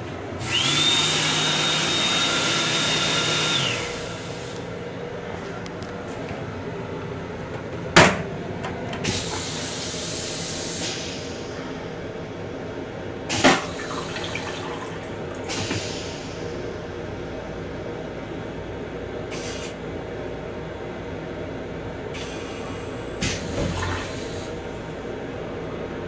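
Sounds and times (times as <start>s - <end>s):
vacuum toilet suck: 0.4s - 4.7s, 9.0s - 11.4s, 13.3s - 16.6s, 22.2s - 24.7s
hissing rinse water: 13.3s - 16.5s.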